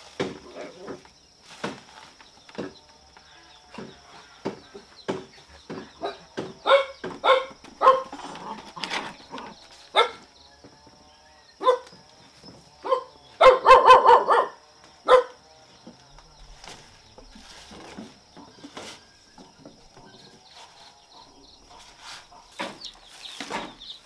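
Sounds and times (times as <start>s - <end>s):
dog barking: 6.0s - 8.2s, 9.9s - 10.2s, 11.6s - 11.9s, 12.8s - 15.4s.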